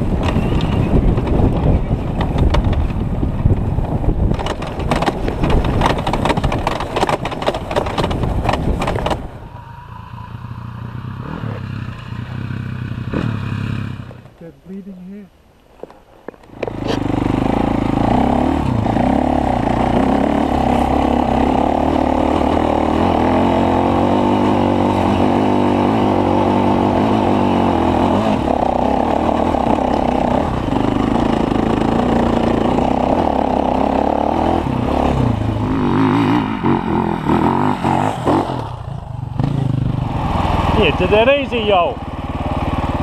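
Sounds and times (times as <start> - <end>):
dirt bike engine under load: 0.0 - 9.4, 15.7 - 27.4.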